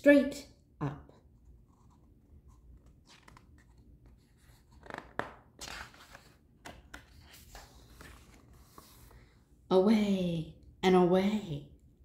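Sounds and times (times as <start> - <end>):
paper pages rustling: 1.6 - 9.3.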